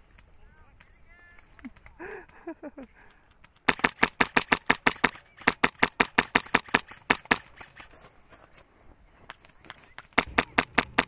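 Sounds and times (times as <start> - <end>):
airsoft rifle rapid fire: 3.6 - 8.0, 10.0 - 11.0.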